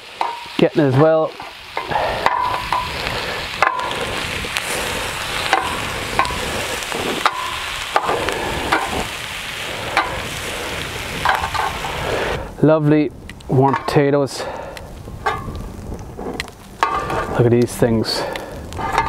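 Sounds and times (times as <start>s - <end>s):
food sizzling on a grill: 0.0s - 19.0s.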